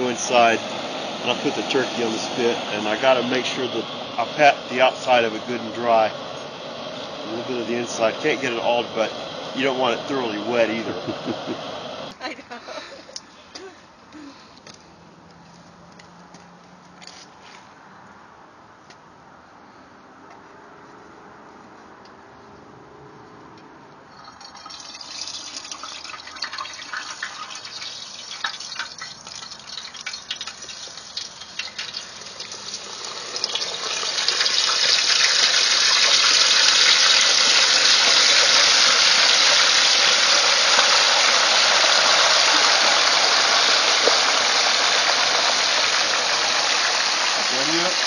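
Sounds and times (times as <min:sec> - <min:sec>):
frying oil crackling and sizzling: 0:00.0 - 0:12.2, 0:24.2 - 0:48.0.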